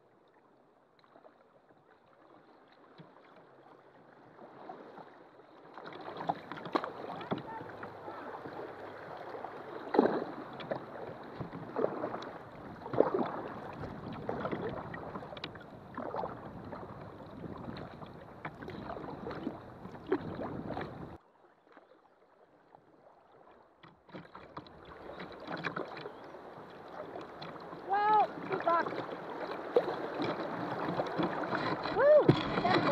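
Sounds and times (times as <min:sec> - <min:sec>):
paddle splashes: 0:00.0 - 0:32.9
running water splashing: 0:24.4 - 0:32.9.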